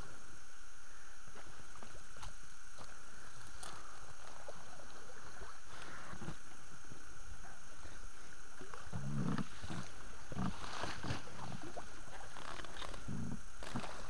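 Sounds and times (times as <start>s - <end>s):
steady hiss: 0.0s - 14.0s
oars knocking and splashing: 8.6s - 14.0s
weeds scraping along boat hull: 9.2s - 14.0s.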